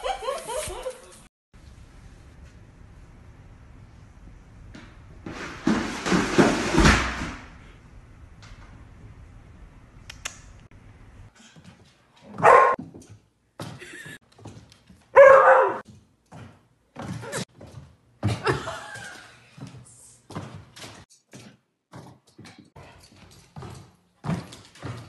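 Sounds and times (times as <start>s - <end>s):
dog barking: 12.4s - 12.8s, 15.2s - 15.8s.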